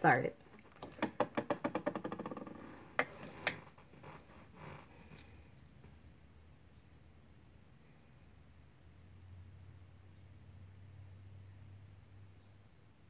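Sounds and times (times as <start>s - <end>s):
rattling small clicks: 0.6s - 4.3s.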